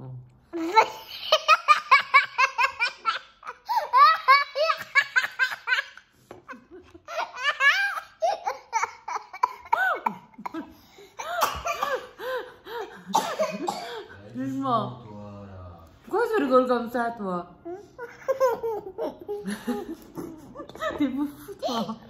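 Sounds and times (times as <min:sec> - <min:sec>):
boy laughing: 0:00.6 - 0:13.7, 0:18.0 - 0:20.9, 0:21.5 - 0:22.0.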